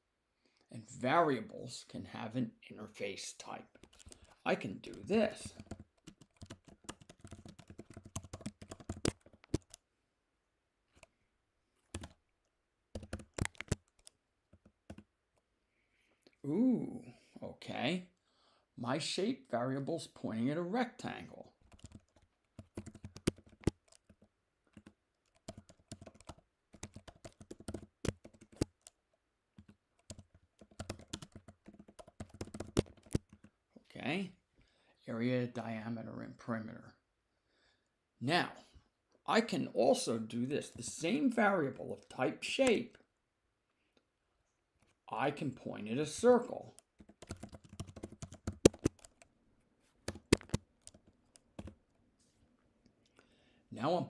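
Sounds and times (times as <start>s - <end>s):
computer keyboard key clicks: 5.5s - 9.8s, 12.0s - 12.2s, 13.0s - 15.0s, 21.7s - 24.2s, 29.6s - 33.4s, 46.8s - 49.3s, 50.1s - 51.8s.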